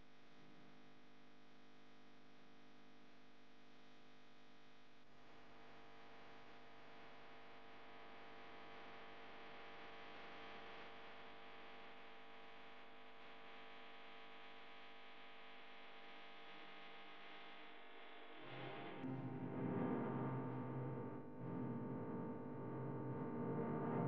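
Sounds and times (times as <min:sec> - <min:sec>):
faint music of held tones: 0:18.3 - 0:24.0.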